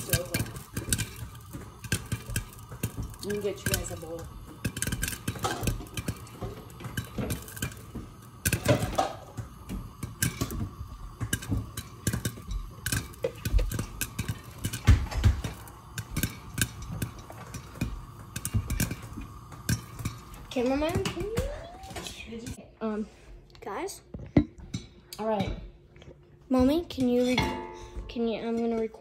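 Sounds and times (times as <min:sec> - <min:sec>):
popcorn popping in a saucepan: 0:00.0 - 0:22.6.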